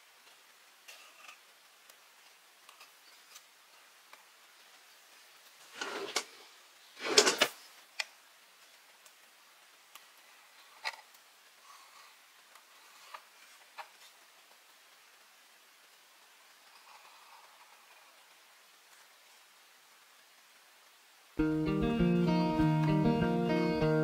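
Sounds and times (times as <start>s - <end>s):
handling noises: 5.7s - 6.4s, 7.0s - 7.6s.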